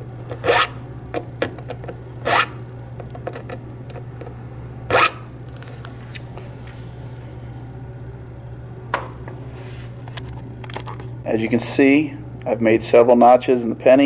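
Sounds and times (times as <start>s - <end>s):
steady low hum: 0.0s - 14.0s
file rasping against coin: 0.3s - 0.8s, 2.2s - 2.6s, 4.9s - 5.2s.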